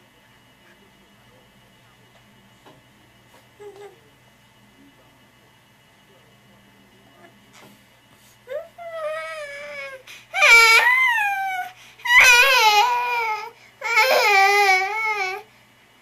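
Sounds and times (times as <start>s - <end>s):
baby crying: 8.5s - 15.5s.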